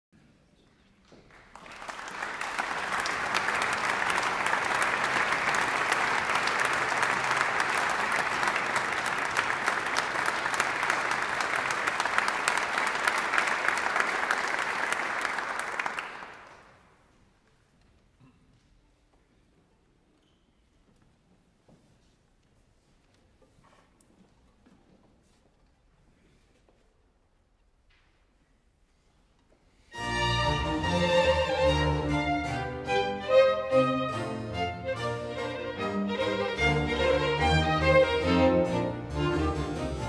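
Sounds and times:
audience applauding: 1.1s - 16.9s.

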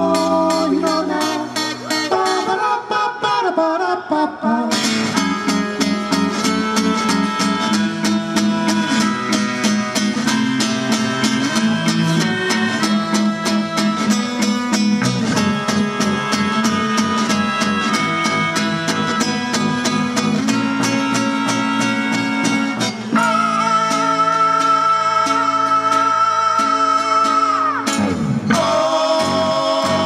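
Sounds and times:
strummed acoustic guitar: 0.0s - 3.2s, 4.7s - 30.0s
electric bass: 0.0s - 3.4s, 4.5s - 30.0s
person singing: 0.0s - 5.3s, 20.5s - 30.0s.

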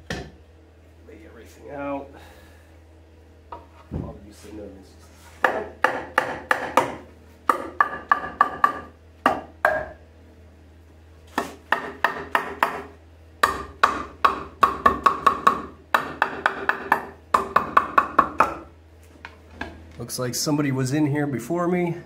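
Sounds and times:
rubber mallet knocking wood: 5.4s - 10.0s, 11.7s - 18.7s.

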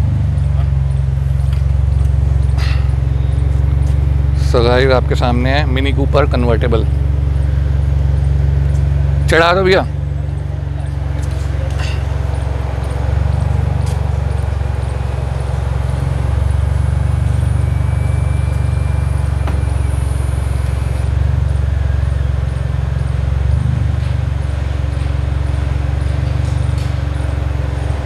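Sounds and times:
car engine idling: 0.0s - 28.0s
convertible roof mechanism whine: 0.0s - 28.0s.

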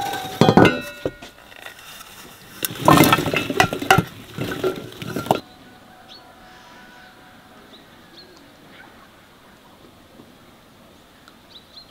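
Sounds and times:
metal dishes clinking: 0.0s - 1.7s, 2.6s - 5.4s.

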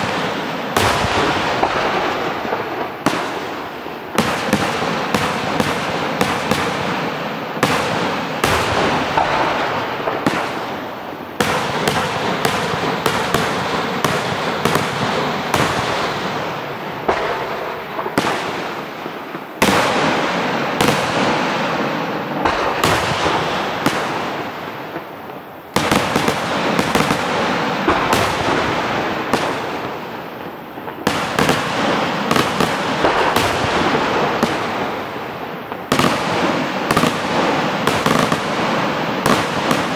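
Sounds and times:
fireworks bangs: 0.0s - 39.9s
fireworks crackle: 0.0s - 39.9s.

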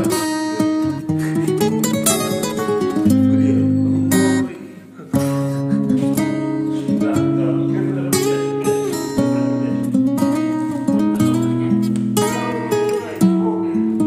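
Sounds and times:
strummed acoustic guitar music: 0.0s - 14.0s.

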